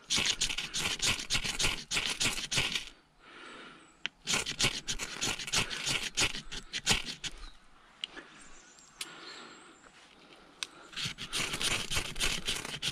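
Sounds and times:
knife scraping ferro rod: 0.0 - 2.9, 4.2 - 7.5, 10.9 - 12.9.

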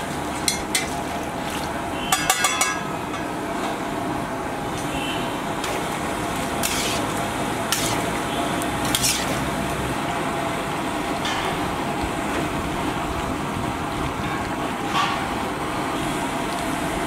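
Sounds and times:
food sizzling in a wok: 6.5 - 9.7
metal spatulas scraping a pan: 6.6 - 8.2, 8.8 - 9.5.

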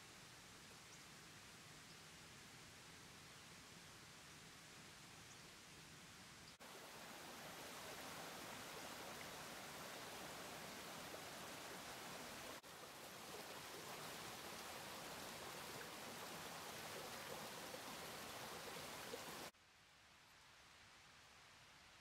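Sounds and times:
creek water rushing over stones: 6.6 - 19.6.

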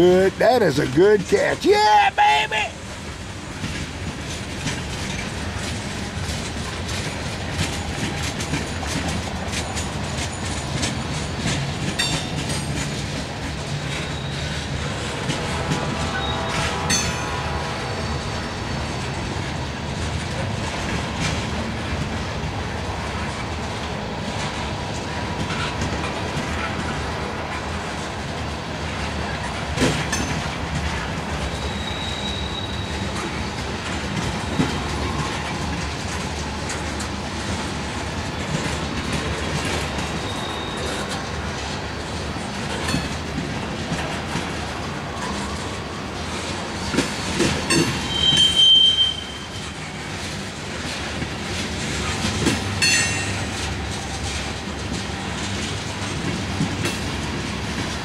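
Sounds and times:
clickety-clack over rail joints: 0.0 - 58.0
train wheels rumbling on rail: 0.0 - 58.0
faint high squeal: 31.5 - 33.1, 40.2 - 41.0, 48.0 - 49.6.

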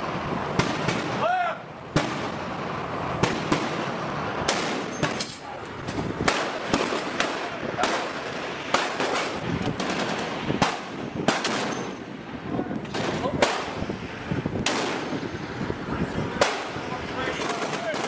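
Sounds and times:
rushing background noise: 0.0 - 18.0
rifle gunshots: 3.2 - 5.5, 6.2 - 11.9, 14.6 - 15.2, 16.4 - 16.8.

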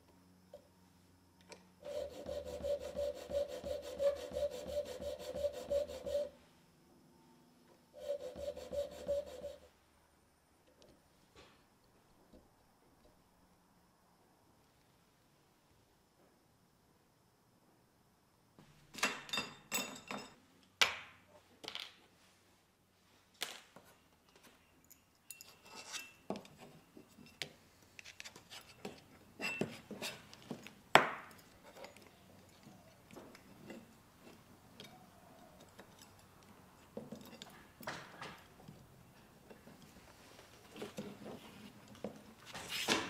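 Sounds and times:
metal tripod parts clinking: 24.4 - 26.6.

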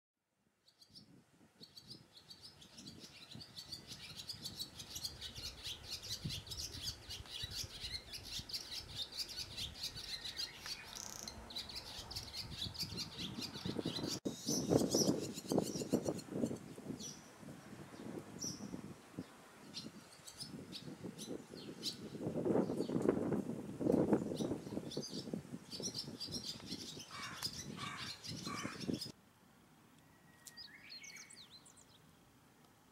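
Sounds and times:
swallow twittering song: 0.7 - 17.3, 24.2 - 29.1, 30.0 - 32.0.

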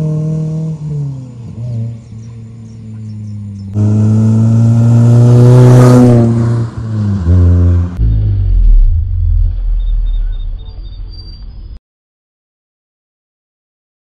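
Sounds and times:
car engine revving: 0.0 - 11.2
low rumble: 6.8 - 11.8.

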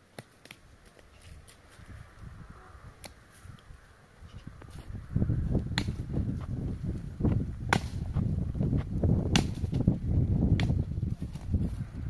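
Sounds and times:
steady low rumble: 1.9 - 12.0
sharp cracking strikes: 9.2 - 9.8.

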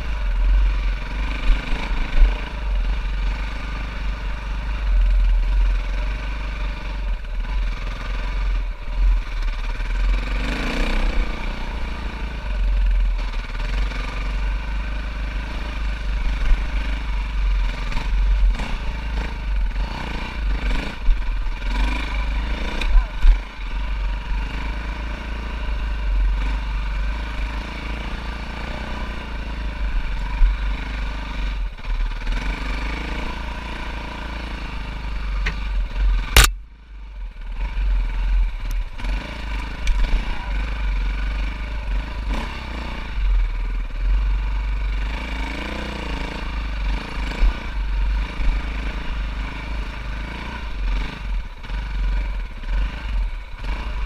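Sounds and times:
dirt bike engine running: 0.0 - 54.0
sharp click: 36.3 - 36.6.

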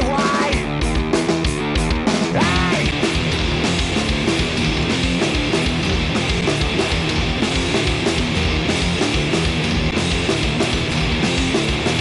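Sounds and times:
punk rock band playing: 0.0 - 12.0.

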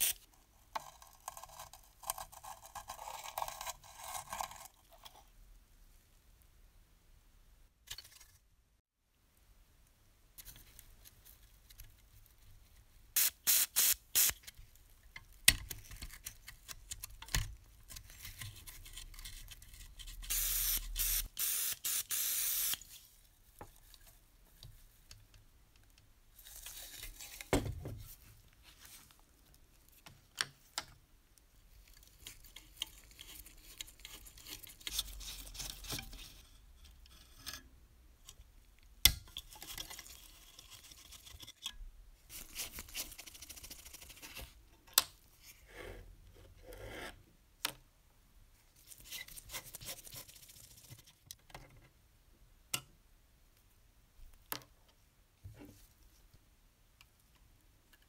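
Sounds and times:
aerosol spray hissing: 13.2 - 14.4, 20.4 - 22.8
screwdriver scraping a screw: 19.8 - 22.8.

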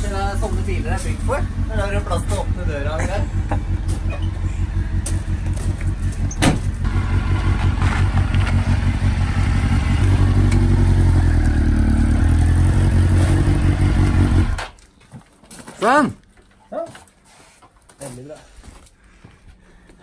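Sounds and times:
motorcycle engine idling: 0.0 - 12.6.

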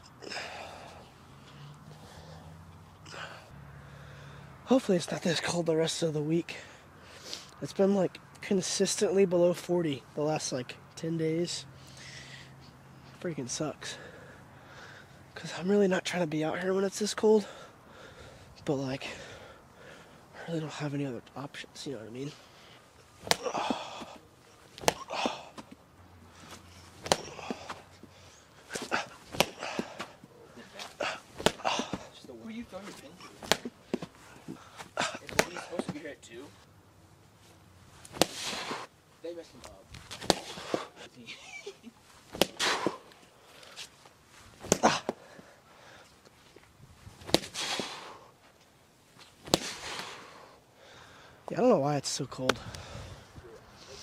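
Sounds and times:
rustle of movement: 21.8 - 51.2
baseballs smacking a net: 23.2 - 25.8, 26.4 - 28.0, 28.7 - 36.1, 38.0 - 38.9, 39.6 - 40.9, 42.3 - 43.9, 44.5 - 45.4, 47.2 - 48.1, 49.2 - 50.3.

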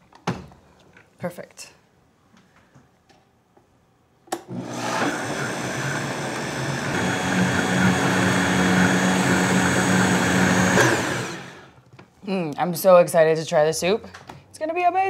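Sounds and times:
blender switch click: 4.3 - 4.6
blender motor running: 4.4 - 11.7.

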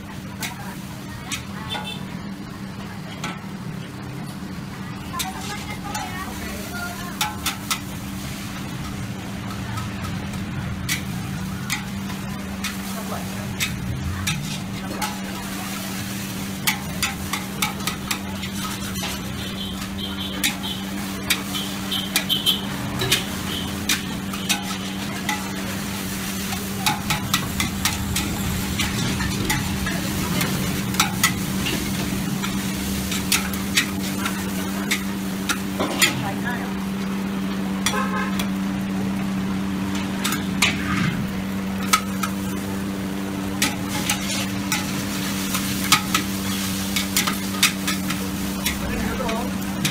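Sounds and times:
food sizzling: 0.0 - 49.9
spatula scraping a wok: 5.0 - 36.2, 43.4 - 49.9.

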